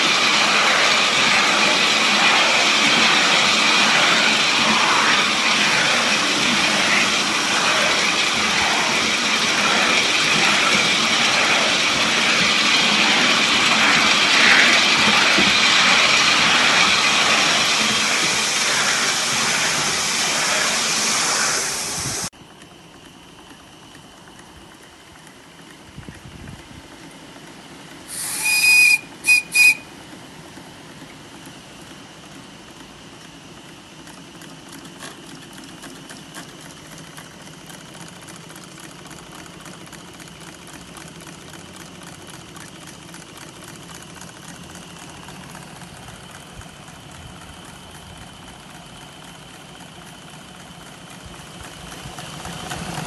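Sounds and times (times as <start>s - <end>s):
model steam locomotive rushing steam: 0.0s - 53.0s
steam whistle toots: 28.1s - 30.0s.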